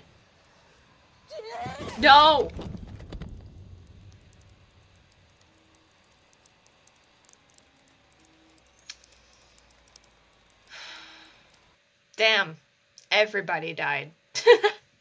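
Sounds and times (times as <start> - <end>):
faint clicks: 3.0 - 11.8.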